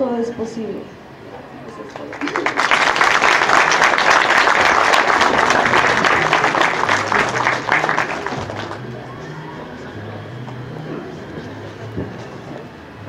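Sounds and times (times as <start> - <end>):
audience applauding: 1.7 - 9.8.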